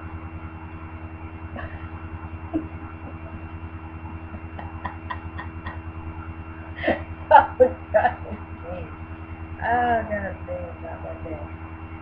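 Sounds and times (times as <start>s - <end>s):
low electrical hum with whine: 0.0s - 12.0s
stifled giggles: 2.6s - 5.9s.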